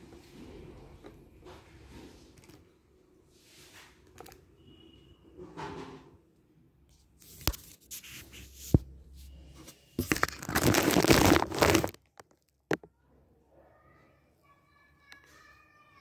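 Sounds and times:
plastic wrap crinkling: 10.0s - 12.7s.

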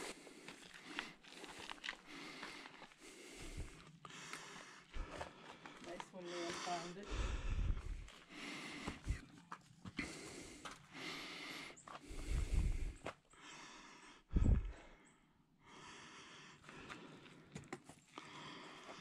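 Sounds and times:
people breathing hard: 0.0s - 19.0s.

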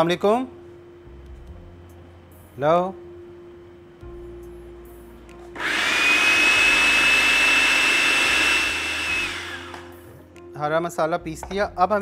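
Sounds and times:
blade grinding food: 5.6s - 9.9s
food chopper motor whining: 5.6s - 10.0s.

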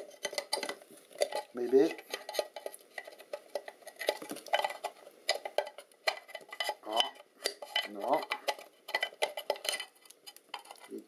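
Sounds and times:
plastic parts clicking and scraping: 0.0s - 11.0s.

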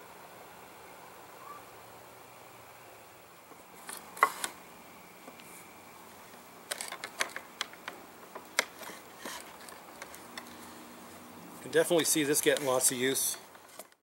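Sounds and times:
quick wooden clicks: 6.7s - 10.6s.

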